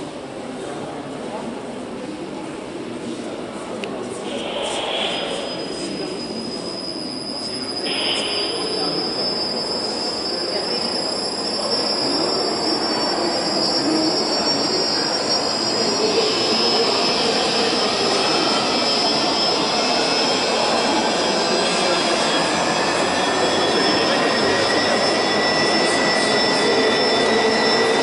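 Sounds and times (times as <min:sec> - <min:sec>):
cable drum high-pitched whine: 0:04.2 - 0:06.6, 0:07.5 - 0:10.4.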